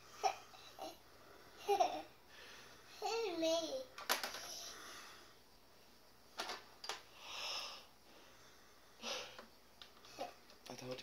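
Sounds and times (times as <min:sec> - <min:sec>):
soft breathy hiss: 0:00.0 - 0:11.0
plastic toy parts clicking: 0:04.0 - 0:04.5.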